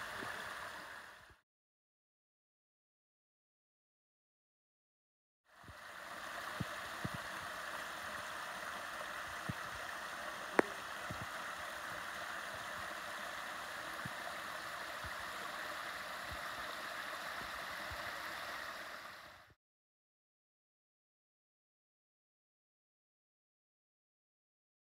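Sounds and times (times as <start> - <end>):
waterfall splashing into pool: 0.0 - 1.2, 5.7 - 19.5.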